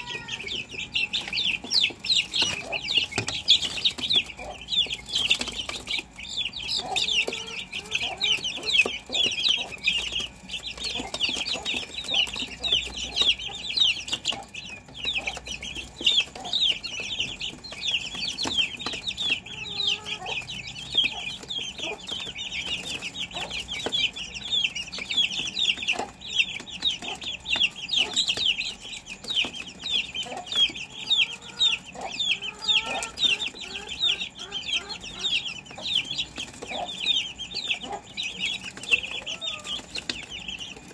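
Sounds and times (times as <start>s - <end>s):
lower chicken calls: 0.0s - 3.3s, 38.8s - 40.0s
chicks peeping: 0.0s - 40.9s.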